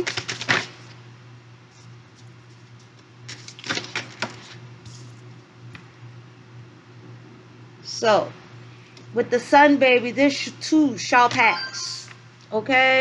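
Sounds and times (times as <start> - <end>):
cards clicking and rustling: 0.0 - 0.8, 2.8 - 5.1
low room hum: 0.0 - 13.0.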